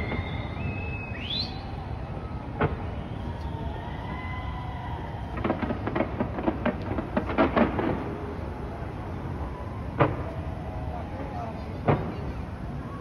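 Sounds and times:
fireworks crackling pops: 0:00.0 - 0:13.0
fireworks sharp bang: 0:02.5 - 0:04.3, 0:05.0 - 0:08.4, 0:09.9 - 0:10.5, 0:11.8 - 0:12.6.

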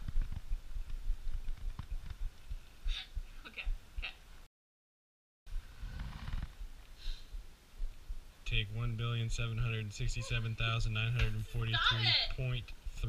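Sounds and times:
low thumping rumble: 0:05.5 - 0:11.8.

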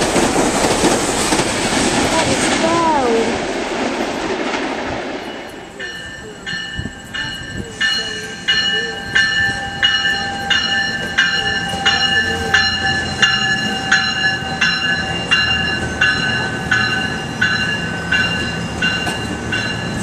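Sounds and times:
passing train rumble: 0:00.0 - 0:20.0
train bell ringing: 0:05.1 - 0:20.0.

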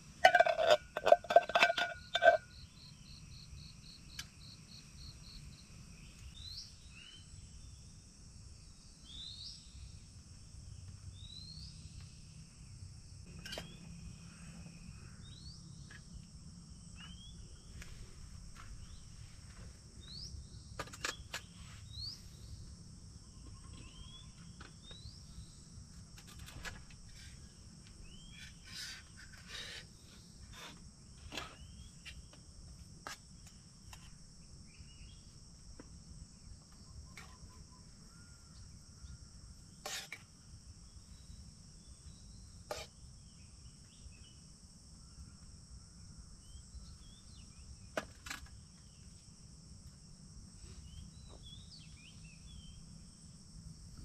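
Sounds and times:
insects droning: 0:00.0 - 0:54.0
utensil clinking on metal pot: 0:00.2 - 0:02.4.

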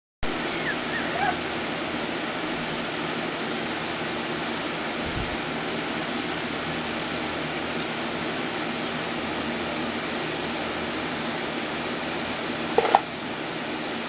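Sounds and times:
puppy squeaks: 0:00.2 - 0:01.6.

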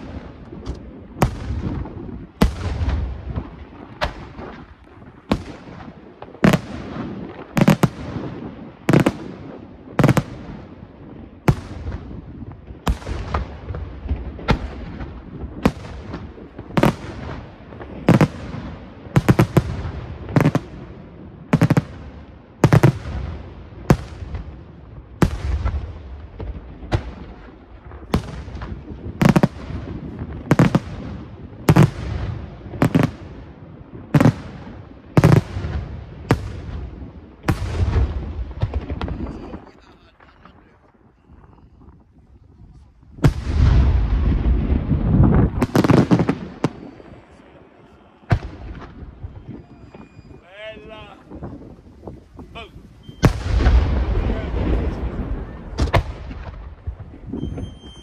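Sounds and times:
fireworks bangs: 0:00.0 - 0:58.0
rumbling echo: 0:43.1 - 0:50.4, 0:51.1 - 0:57.4.

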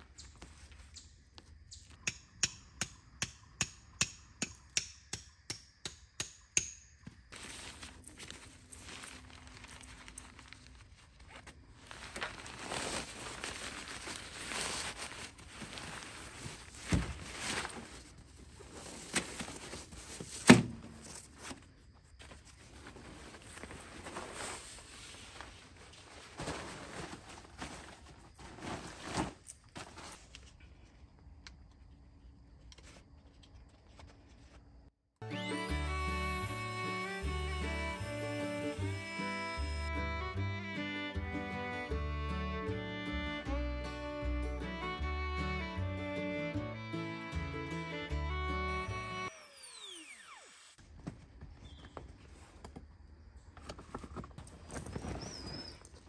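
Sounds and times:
fabric rustling and swishing: 0:07.4 - 0:20.5.

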